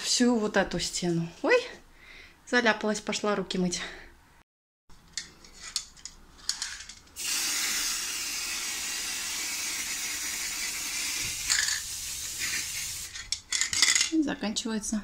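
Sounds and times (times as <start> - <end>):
spray can hissing: 7.2 - 13.2.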